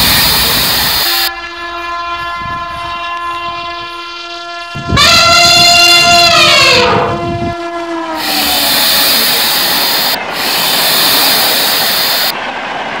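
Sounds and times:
loud steady hiss: 0:00.0 - 0:01.3, 0:08.2 - 0:12.4
train horn: 0:00.0 - 0:12.4.

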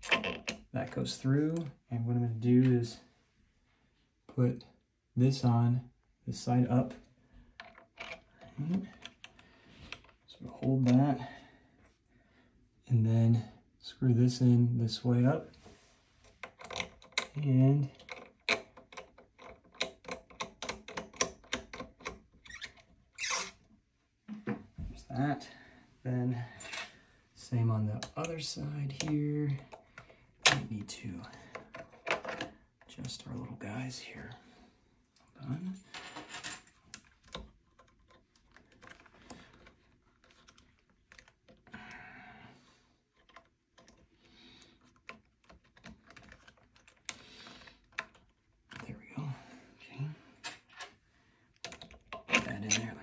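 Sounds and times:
small plastic clicks: 0:51.6 - 0:52.8.

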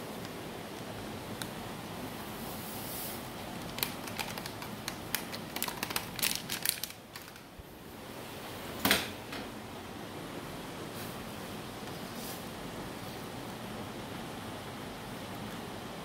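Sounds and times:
plastic sachet crinkling: 0:03.4 - 0:07.5.

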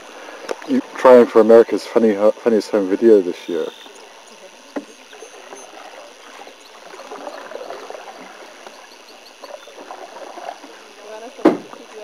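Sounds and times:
water lapping against canoe: 0:00.0 - 0:12.0.

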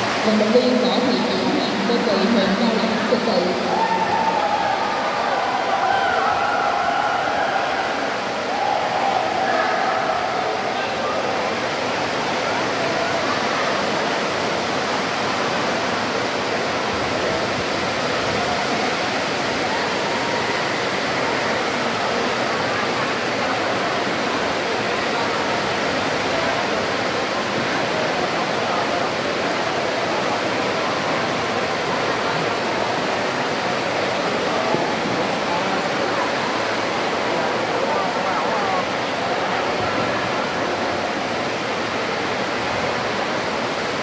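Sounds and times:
indistinct voices: 0:00.0 - 0:11.6
sports hall background din: 0:00.0 - 0:44.0.

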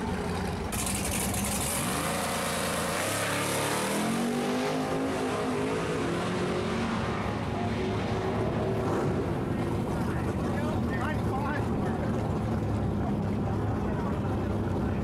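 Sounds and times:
race car accelerating hard: 0:00.7 - 0:10.5.

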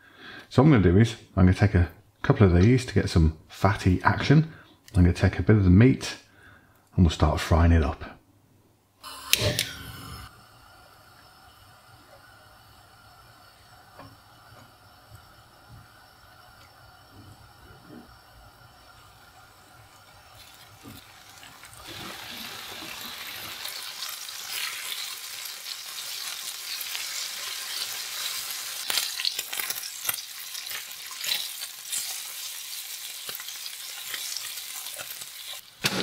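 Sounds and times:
bacon sizzling in a frying pan: 0:09.0 - 0:36.0.

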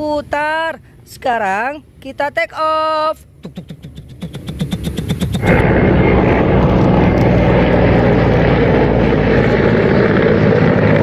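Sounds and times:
helicopter turbine and rotor: 0:03.2 - 0:11.0.

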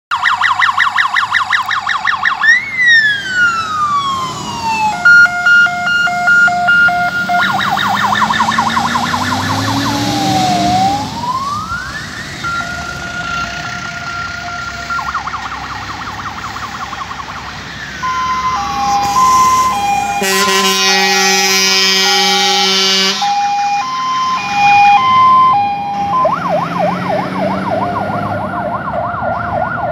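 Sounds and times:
fire engine sirens: 0:00.1 - 0:29.9
horn blast: 0:18.7 - 0:23.5.

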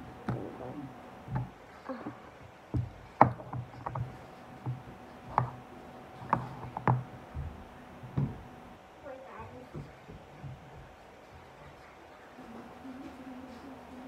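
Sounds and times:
plastic containers knocking: 0:02.7 - 0:05.6.

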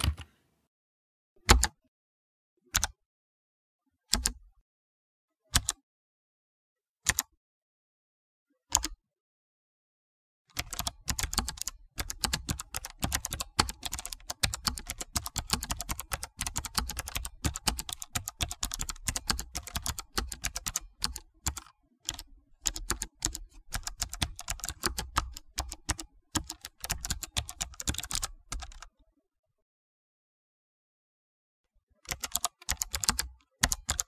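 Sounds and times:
fast keyboard typing: 0:00.0 - 0:00.3, 0:10.5 - 0:28.9, 0:32.1 - 0:34.0.

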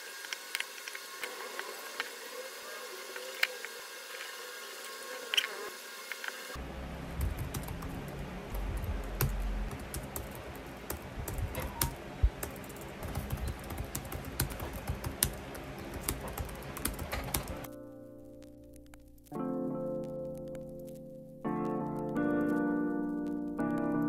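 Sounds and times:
laptop keyboard typing: 0:07.2 - 0:17.7, 0:20.3 - 0:24.0
background music: 0:17.4 - 0:24.0.

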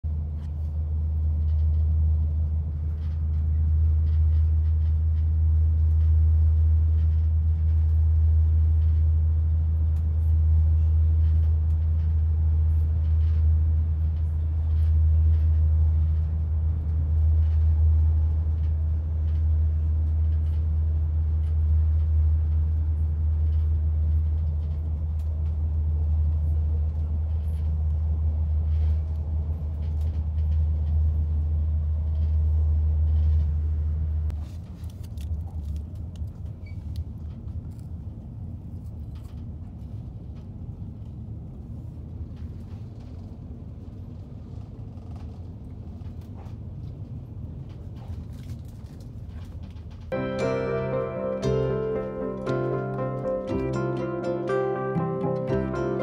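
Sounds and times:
moving train rumble: 0:00.1 - 0:56.0.

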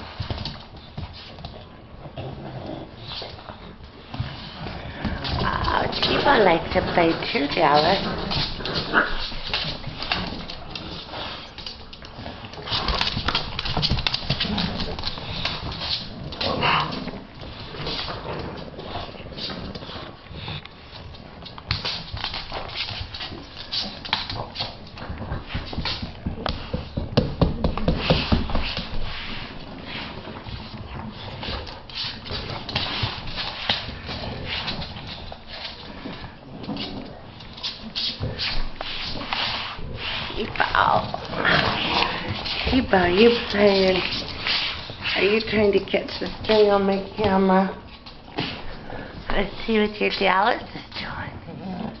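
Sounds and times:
dog claws clicking on wooden floor: 0:04.1 - 0:29.4, 0:40.3 - 0:50.4.

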